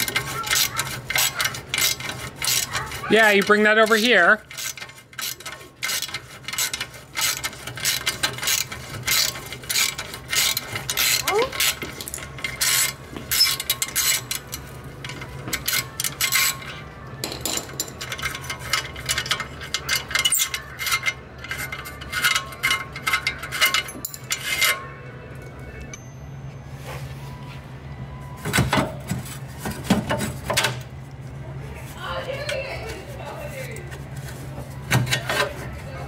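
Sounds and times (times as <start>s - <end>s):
metal tool clinks: 23.0s - 24.8s.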